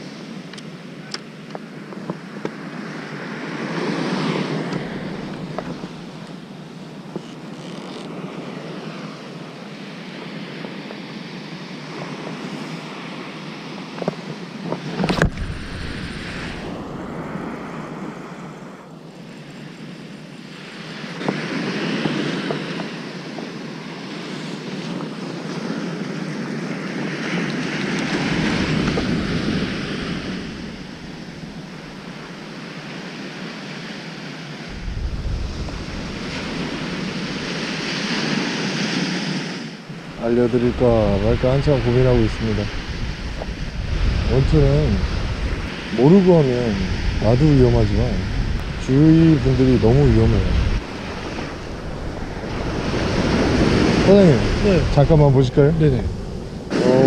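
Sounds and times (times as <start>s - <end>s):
surf washing onto beach: 0.0s - 57.0s.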